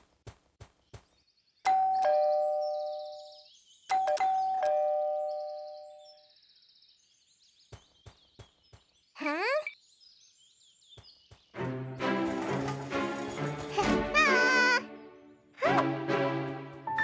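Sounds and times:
faint high chirping: 1.6s - 6.9s.

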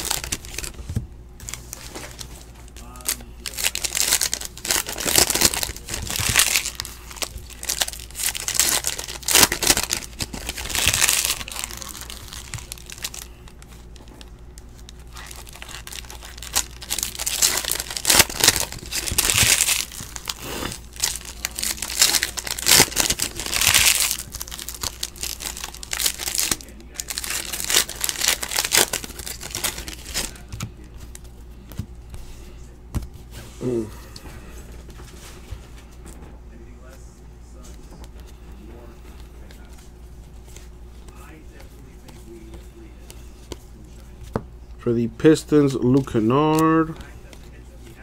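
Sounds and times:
foil wrappers tearing and crinkling: 0.0s - 31.2s
low steady hum: 0.0s - 48.0s.

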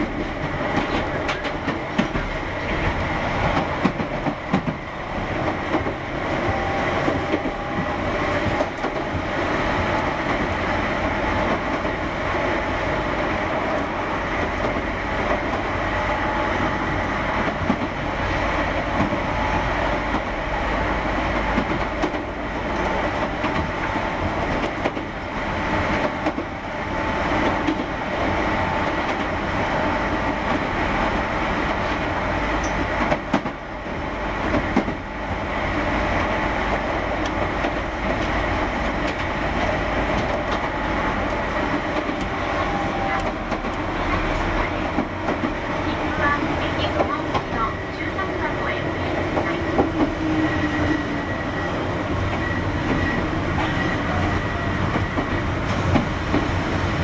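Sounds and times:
train wheels rumbling on rails: 0.0s - 57.0s
track joint clicks: 36.2s - 45.6s.

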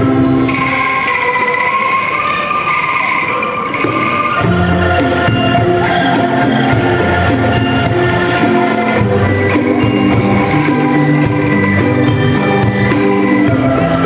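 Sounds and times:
angklung rattling notes: 0.0s - 14.0s
mallet instruments: 0.0s - 14.0s
drum kit: 3.8s - 14.0s.

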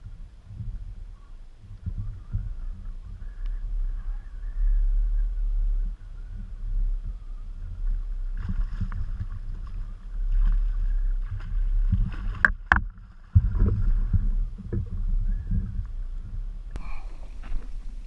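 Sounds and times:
steady low rumble: 0.0s - 18.0s
water sloshing and splashing: 7.7s - 15.9s.

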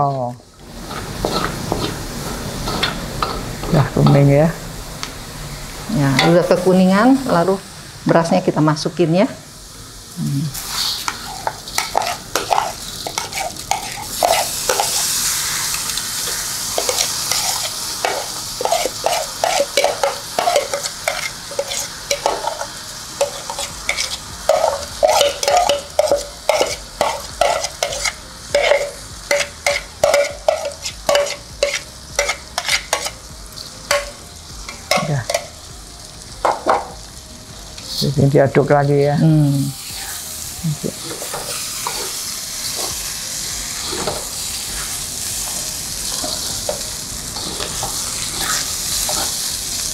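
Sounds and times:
oil sizzling: 0.0s - 49.9s
spatula scraping in a pan: 0.7s - 3.4s, 10.6s - 33.2s.

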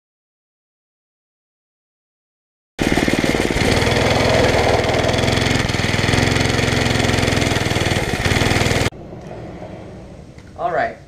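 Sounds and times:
go-kart engine running: 2.8s - 8.9s.

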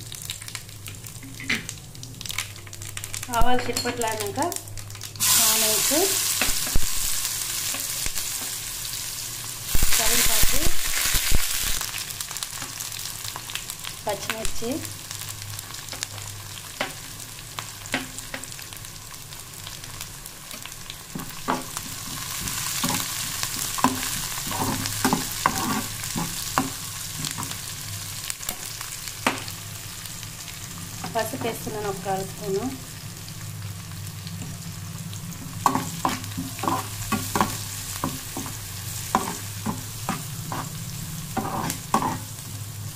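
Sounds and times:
food sizzling in hot oil: 0.0s - 42.9s
steel spoon scraping a pan: 21.2s - 27.6s, 35.4s - 42.4s.

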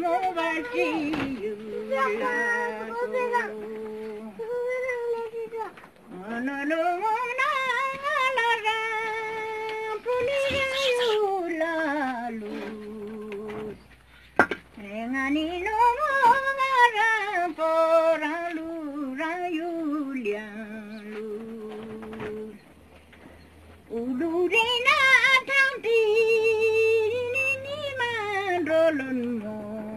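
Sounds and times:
woman singing unaccompanied: 0.0s - 13.9s, 14.7s - 22.6s, 23.8s - 29.9s.

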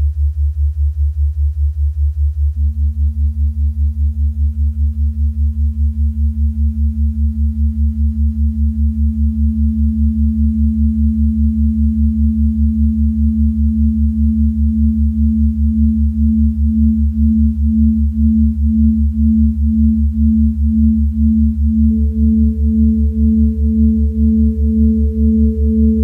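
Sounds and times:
deep pulsing drone: 0.0s - 26.0s
pure hum tone: 0.0s - 26.0s.

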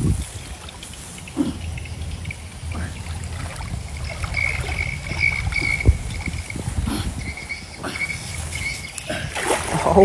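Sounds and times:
water sloshing and splashing: 2.6s - 7.0s, 7.8s - 10.0s.

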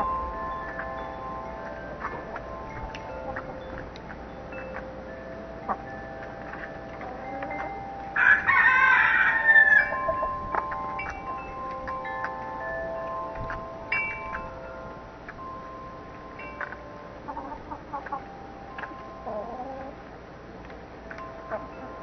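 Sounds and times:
wind chimes ringing: 0.0s - 20.0s, 20.9s - 22.0s
rooster crowing: 8.2s - 10.0s.

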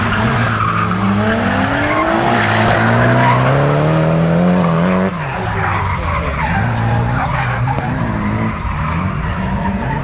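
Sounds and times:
car engine revving hard: 0.0s - 5.2s
tyres skidding: 0.0s - 10.0s.

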